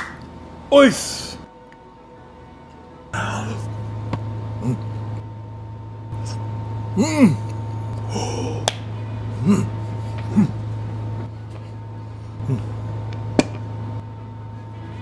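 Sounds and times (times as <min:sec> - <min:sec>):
steady low hum: 0:00.0 - 0:15.0
man humming in appreciation: 0:03.2 - 0:03.7, 0:04.6 - 0:05.0, 0:06.2 - 0:08.7, 0:09.3 - 0:10.7, 0:12.4 - 0:12.9.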